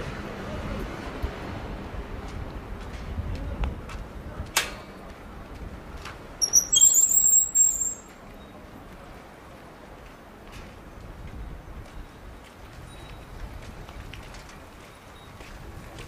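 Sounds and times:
street ambience: 0:00.0 - 0:16.0
shrill high-pitched chirping squeal: 0:06.4 - 0:08.1.

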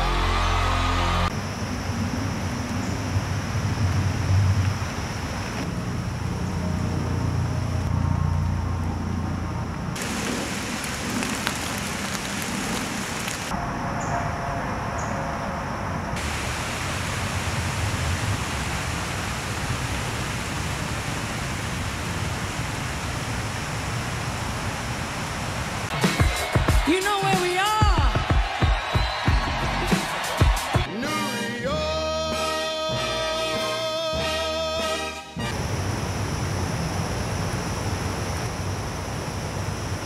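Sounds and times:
outdoor hiss: 0:09.9 - 0:13.6, 0:16.2 - 0:26.0, 0:35.4 - 0:40.0.

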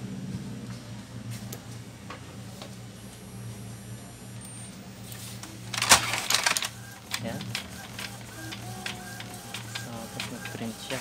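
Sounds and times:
printer humming with faint ticks: 0:01.5 - 0:11.0
print head carriage clattering whir: 0:05.4 - 0:11.0.

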